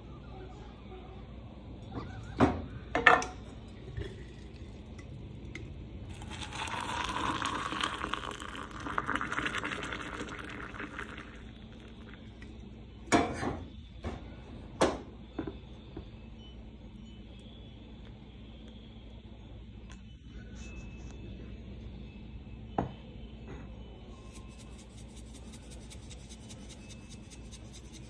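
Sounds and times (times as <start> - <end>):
hot water pouring into mug: 3.7 - 5.2, 6.1 - 12.5.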